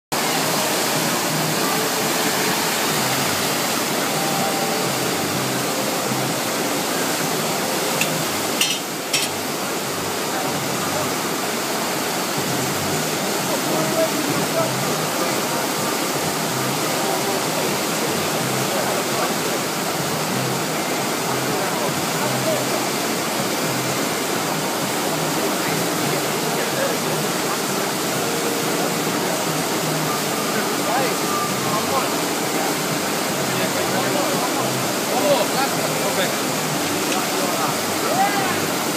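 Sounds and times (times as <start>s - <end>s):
rushing pumped water: 0.1s - 38.9s.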